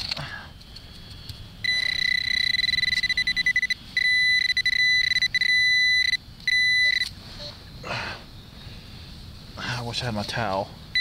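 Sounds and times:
high-pitched metal detector tone: 1.6 - 7.1.

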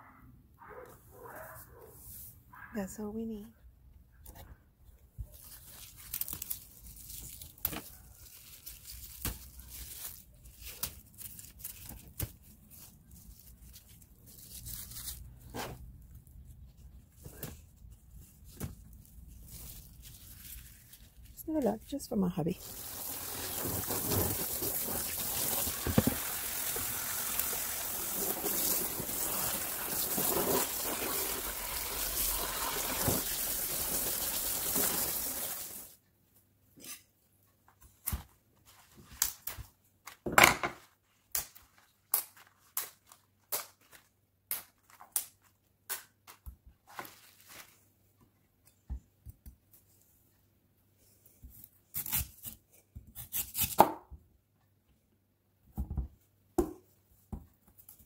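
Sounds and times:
water running: 22.6 - 36.0
knife cutting vegetable: 51.5 - 54.0.

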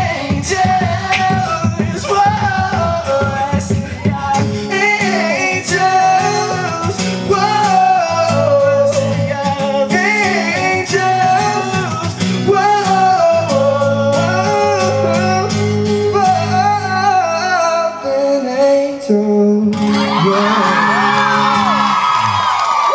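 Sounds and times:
strummed acoustic guitar: 0.0 - 17.9, 19.7 - 22.2
man singing: 0.0 - 22.0
audience cheering: 19.8 - 22.9.

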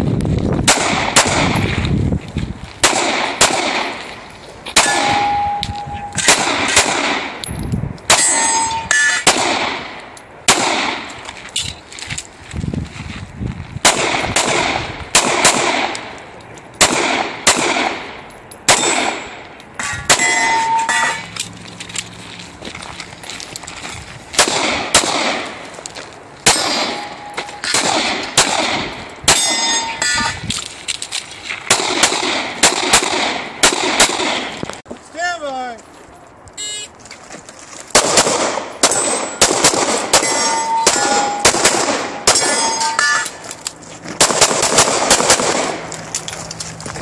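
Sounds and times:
pistol shots with echo: 0.6 - 1.7, 2.8 - 4.0, 4.8 - 7.4, 8.1 - 11.1, 13.8 - 16.1, 16.8 - 21.2, 24.4 - 25.6, 26.4 - 30.3, 31.7 - 34.6, 38.0 - 43.2, 44.2 - 45.8.

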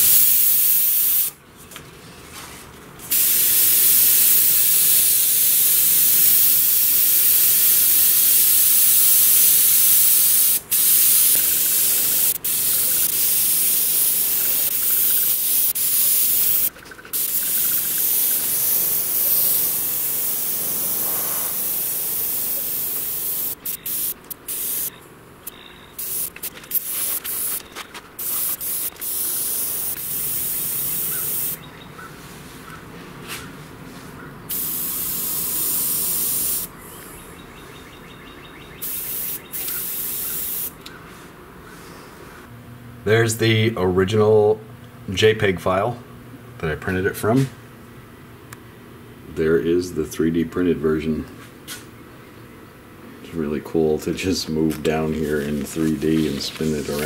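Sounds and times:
airbrush spraying hiss: 0.0 - 1.4, 3.1 - 24.9, 26.0 - 27.6, 28.2 - 31.6, 34.5 - 36.7, 38.8 - 40.8, 55.2 - 57.0.

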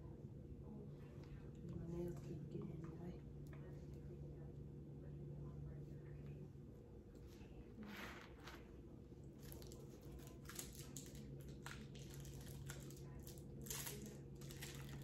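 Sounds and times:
steady low hum: 0.0 - 15.0
packaging clicks and crinkles: 9.5 - 15.0.

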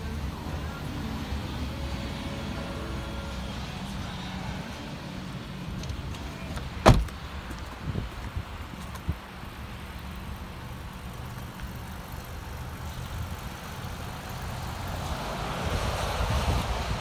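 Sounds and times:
road traffic: 0.0 - 17.0
wind rumbling on microphone: 6.8 - 9.4, 14.8 - 17.0.

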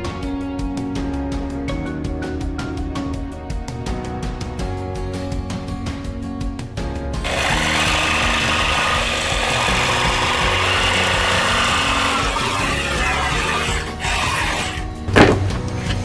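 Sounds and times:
background music: 0.0 - 16.0
jigsaw cutting through board: 7.2 - 14.9.

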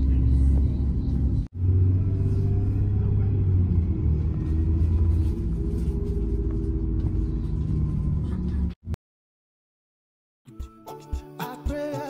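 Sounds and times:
vehicle engine and road rumble: 0.0 - 9.0.

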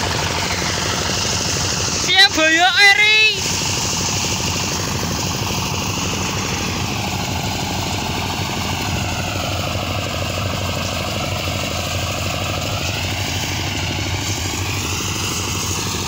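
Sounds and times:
threshing machine droning: 0.0 - 16.0.

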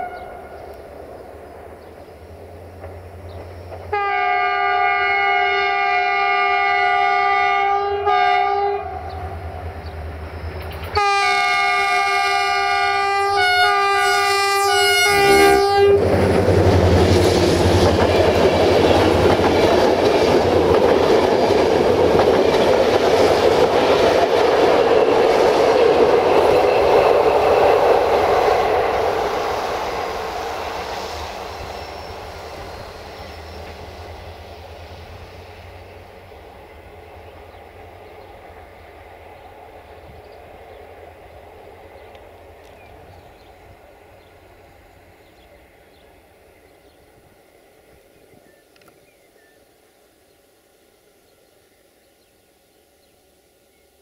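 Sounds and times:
locomotive horn: 0.0 - 0.8, 3.9 - 9.3, 11.0 - 16.2
train wheels rumbling on rails: 0.0 - 49.1.

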